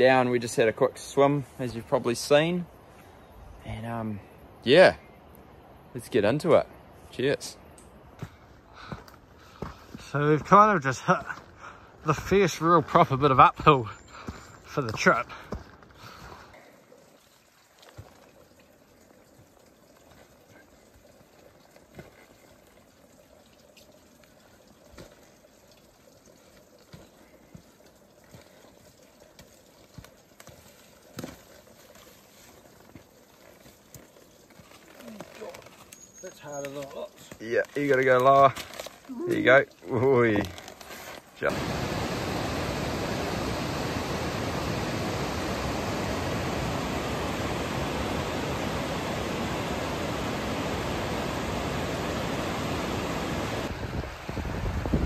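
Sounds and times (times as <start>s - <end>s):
boots on rock and earth: 8.2s - 11.6s, 13.9s - 16.4s
faint steady rushing: 41.4s - 55.0s.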